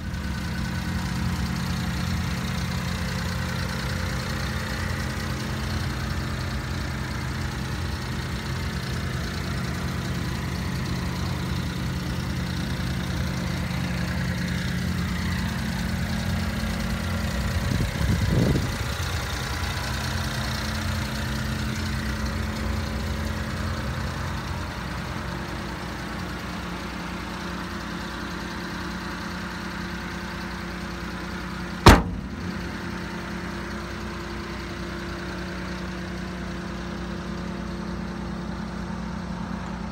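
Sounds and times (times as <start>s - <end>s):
truck engine idling: 0.0s - 39.9s
door slamming shut: 31.8s - 32.7s.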